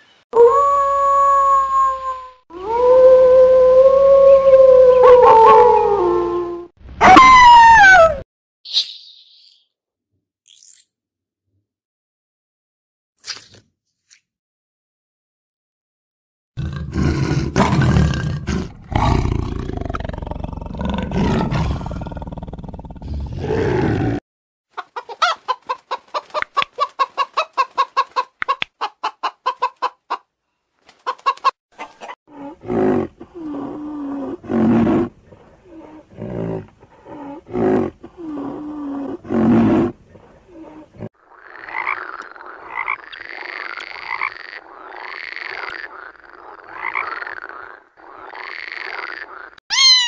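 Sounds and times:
hens clucking: 0:24.8 - 0:30.3, 0:30.9 - 0:32.2
frog croaking: 0:41.2 - 0:49.6.

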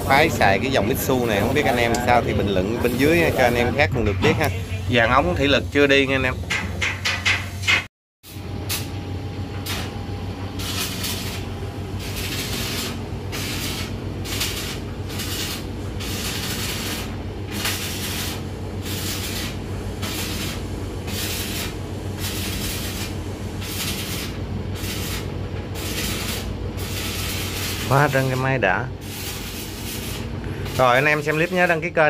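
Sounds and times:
diesel engine humming: 0:00.0 - 0:06.5.

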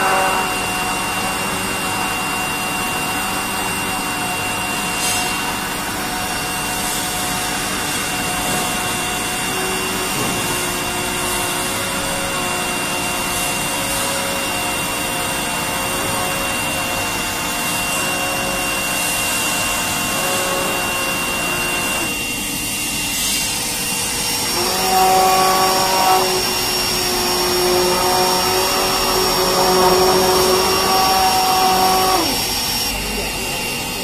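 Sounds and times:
spray dryer whirring: 0:00.0 - 0:34.0
immersion blender churning liquid: 0:23.2 - 0:33.9.

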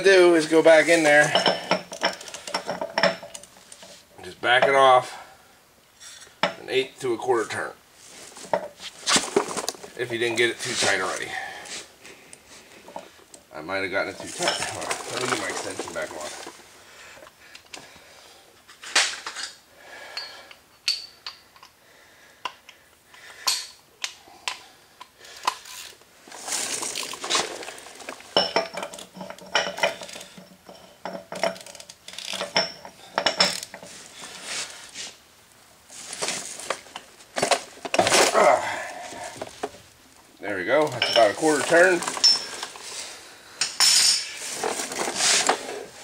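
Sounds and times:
metal hand tools clinking: 0:01.2 - 0:03.5, 0:14.2 - 0:16.5, 0:26.8 - 0:33.8, 0:40.8 - 0:42.8, 0:43.6 - 0:44.8.

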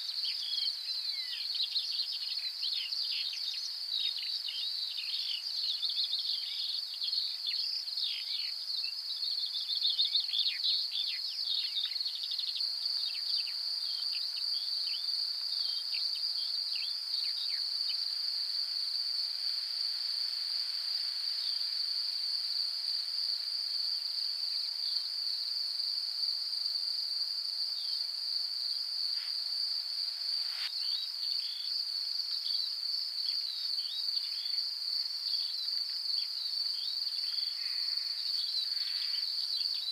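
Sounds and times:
insect trill: 0:00.0 - 0:39.9.

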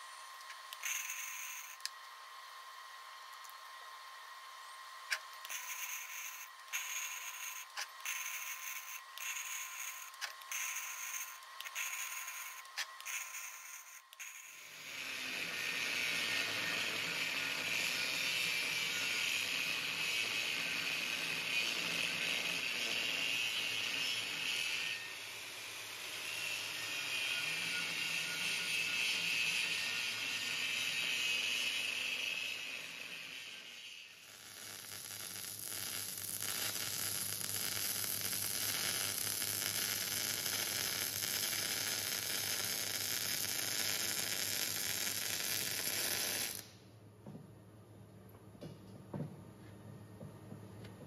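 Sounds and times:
angle grinder grinding steel: 0:00.0 - 0:02.0, 0:05.1 - 0:34.9
welding arc crackling: 0:00.4 - 0:02.0, 0:05.1 - 0:46.8.

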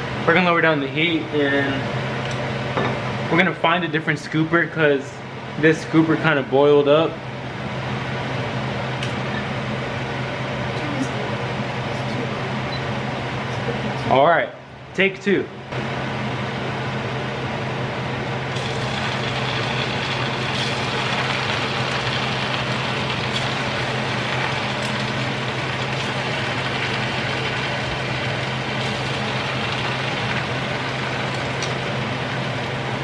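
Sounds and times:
batter frying in hot oil: 0:18.5 - 0:33.0.

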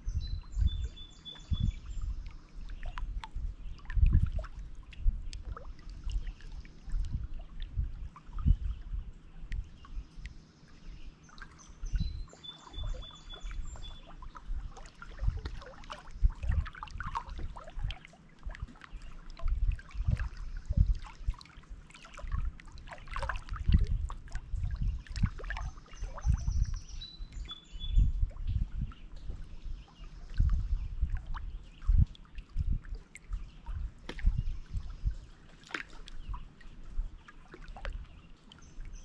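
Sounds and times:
songbird singing: 0:00.0 - 0:39.0
waves lapping against rocks: 0:31.8 - 0:39.0.

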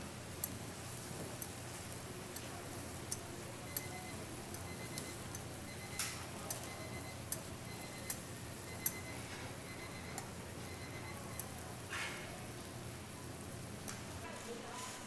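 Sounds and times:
patties sizzling in oil: 0:00.0 - 0:15.0
tongs clicking and scraping on griddle: 0:00.2 - 0:12.7.

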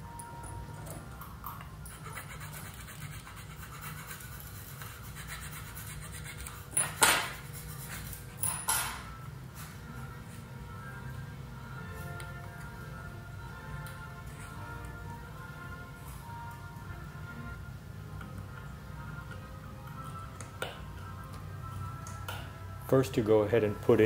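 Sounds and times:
metal tools clacking on table: 0:08.4 - 0:09.1.

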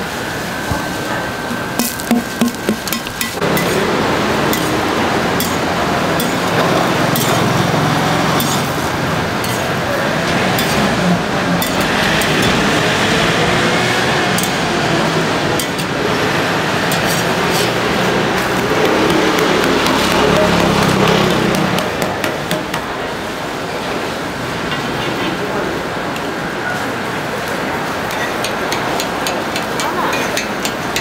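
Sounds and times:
indistinct voices: 0:02.4 - 0:23.1.

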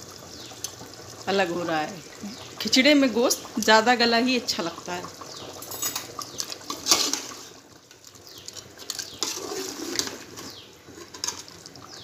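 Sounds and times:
spoon clinking against pot: 0:05.6 - 0:06.2
thick liquid sloshing and squelching: 0:08.8 - 0:12.0.

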